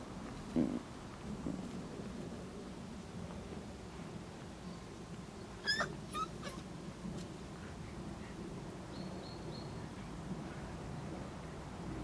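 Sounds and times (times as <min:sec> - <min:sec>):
puppy yelping and squeaking: 0:05.6 - 0:06.6.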